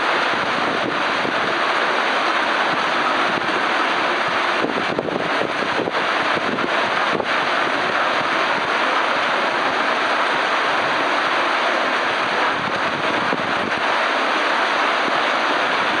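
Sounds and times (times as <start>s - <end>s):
heavy rain pouring: 0.0s - 16.0s.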